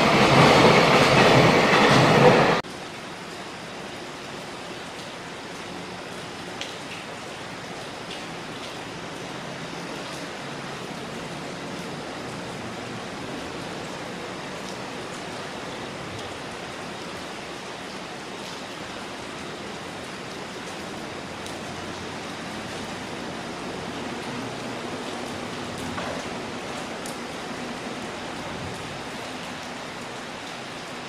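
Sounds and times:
distant freight train hum: 0.0s - 2.6s
steady rain falling: 0.0s - 31.0s.

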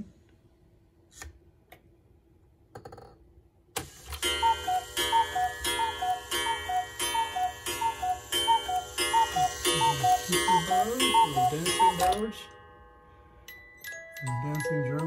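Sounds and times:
cuckoo clock calls: 4.0s - 12.5s
clock hand clicking: 4.2s - 12.3s.

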